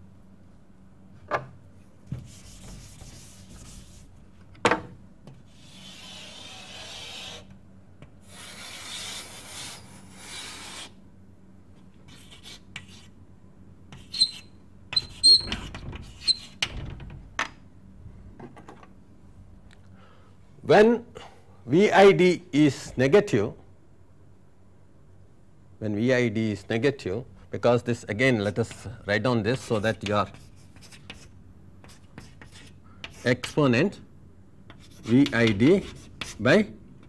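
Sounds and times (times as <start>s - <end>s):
scratchy pen strokes: 5.6s - 7.4s.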